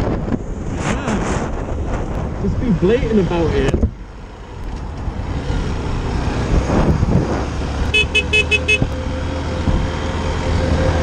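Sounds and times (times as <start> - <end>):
wind noise on helmet: 0.0 - 11.0
horn beeping: 7.9 - 9.0.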